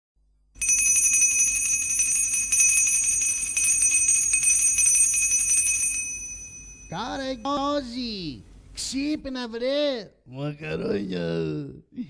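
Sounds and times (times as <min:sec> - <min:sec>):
bell ringing rapidly: 0:00.6 - 0:07.5.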